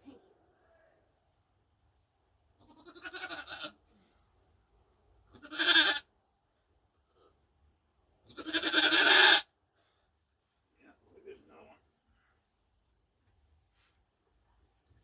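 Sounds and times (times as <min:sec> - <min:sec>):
goat bleating: 0:02.6 - 0:03.9, 0:05.3 - 0:06.1, 0:08.2 - 0:09.5.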